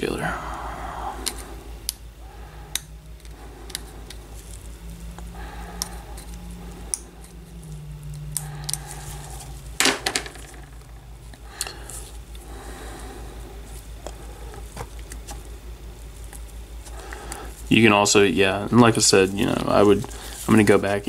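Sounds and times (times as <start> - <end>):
steady low hum: 0.0 - 21.0
dental instrument scraping: 0.9 - 9.8.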